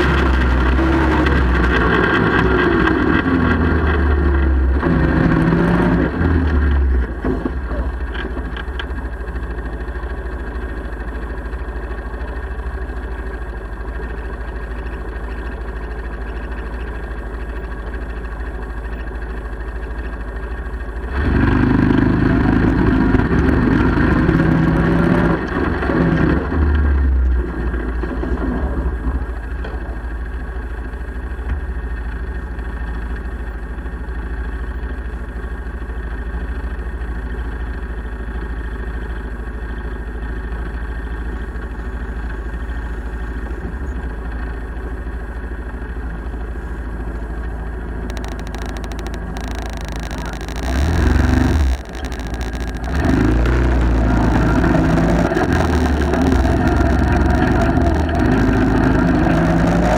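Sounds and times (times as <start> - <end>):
atv engine revving and idling: 0.0 - 59.9.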